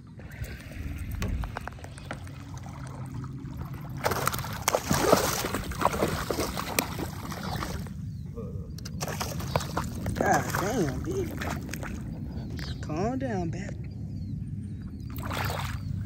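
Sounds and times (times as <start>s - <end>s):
fish thrashing and splashing: 0.3s - 8.0s, 8.8s - 12.2s.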